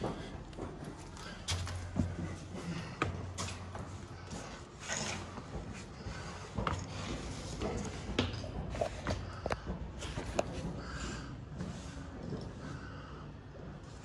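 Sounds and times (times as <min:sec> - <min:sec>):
footsteps on wooden stairs: 0:00.0 - 0:12.6.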